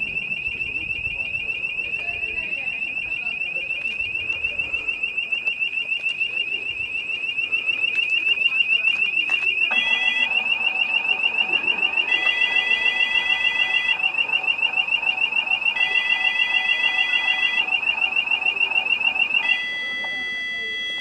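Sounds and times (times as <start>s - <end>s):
electronic alarm warbling: 0.0s - 21.0s
steady beep tone: 0.0s - 21.0s.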